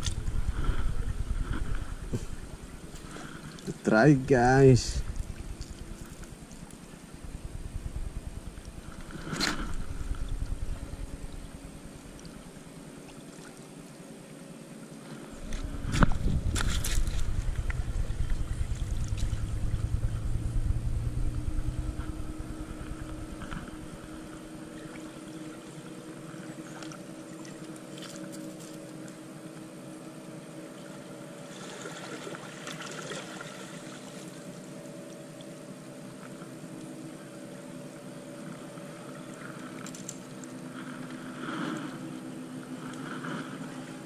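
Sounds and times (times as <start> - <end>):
low rumble on microphone: 0.0 - 12.8, 15.2 - 26.8
steady motor drone: 0.0 - 44.0.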